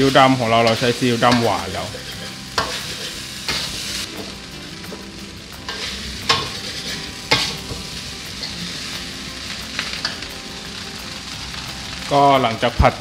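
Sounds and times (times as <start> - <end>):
fried rice sizzling in wok: 0.0 - 13.0
metal spatula scraping wok: 0.4 - 10.3
spatula clanking against wok: 0.6 - 8.6, 9.8 - 10.3.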